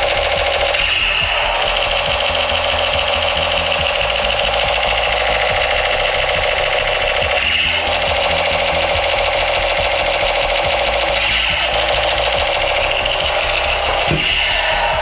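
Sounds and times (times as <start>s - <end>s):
toy machine gun rattle: 0.0s - 15.0s.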